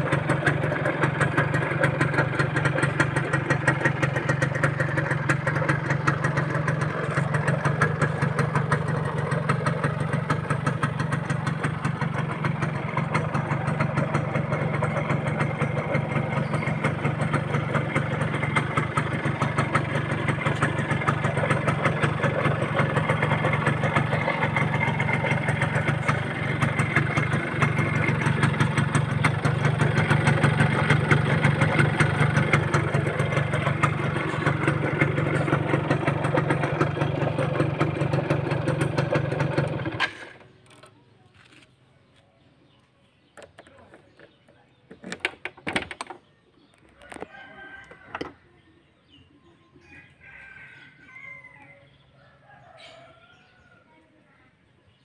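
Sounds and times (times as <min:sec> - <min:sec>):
motorcycle engine idling: 0:00.0 - 0:55.0
rooster crowing: 0:47.0 - 0:48.6, 0:49.8 - 0:54.0.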